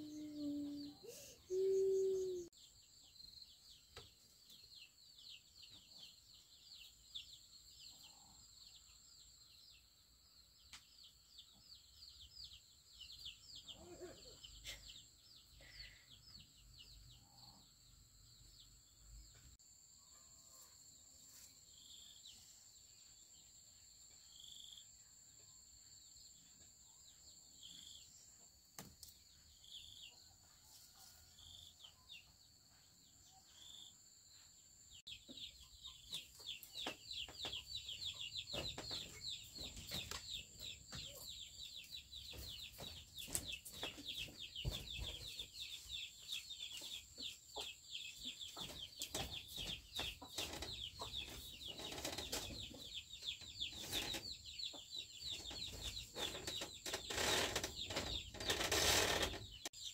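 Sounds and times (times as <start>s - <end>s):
bird chirping: 0.0s - 59.9s.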